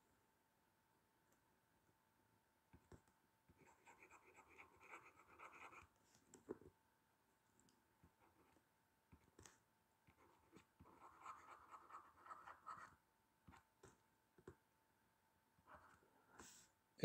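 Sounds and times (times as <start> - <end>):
pen scratching on paper: 3.6 - 5.9, 10.1 - 13.0.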